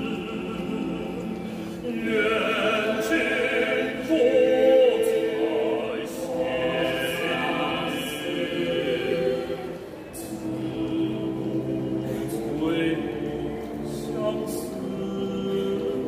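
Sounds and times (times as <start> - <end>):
choir singing sustained chords: 0.0 - 16.0.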